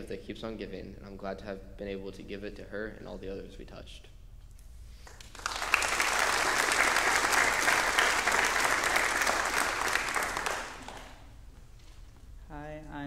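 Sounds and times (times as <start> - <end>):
congregation applauding: 5.0 - 11.4.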